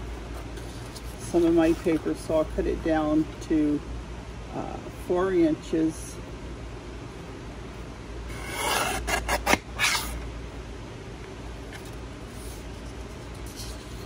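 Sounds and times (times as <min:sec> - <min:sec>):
paper trimmer blade scraping: 0:08.3 - 0:10.2.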